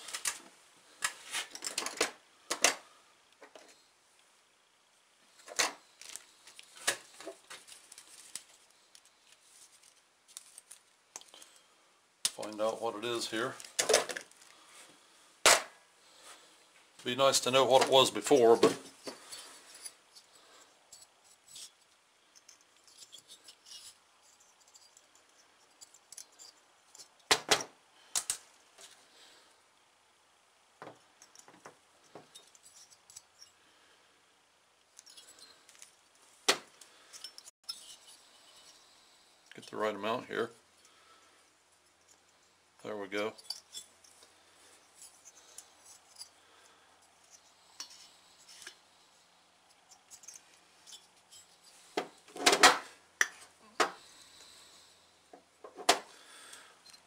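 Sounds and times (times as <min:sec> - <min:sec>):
metal parts clinking: 0:43.4 - 0:44.2.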